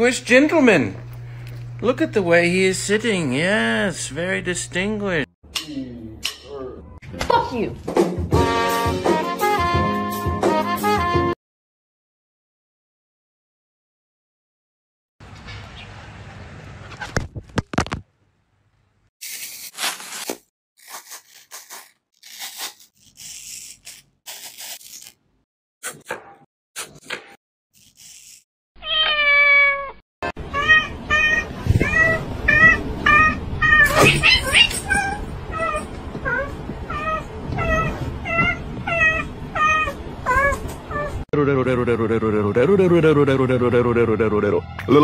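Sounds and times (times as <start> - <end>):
knife cutting crisp apple: 19.2 - 25.2
cat meowing: 28.8 - 41.2.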